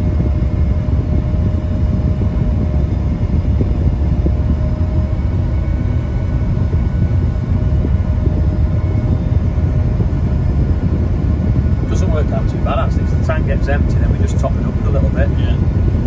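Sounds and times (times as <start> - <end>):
combine harvester drone: 0.0 - 16.0
faint steady whine: 0.0 - 16.0.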